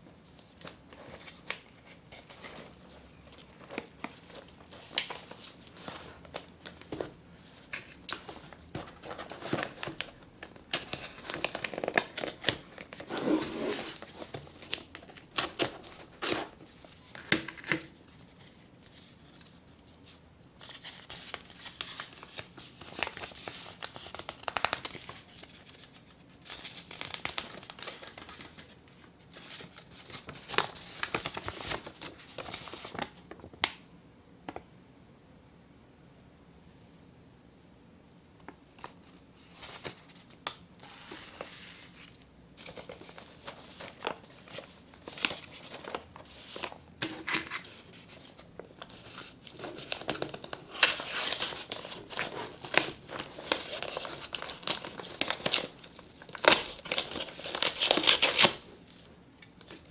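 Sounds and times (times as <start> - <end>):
paper and tape crinkling and tearing: 7.7 - 19.7, 20.6 - 33.5, 38.8 - 59.9.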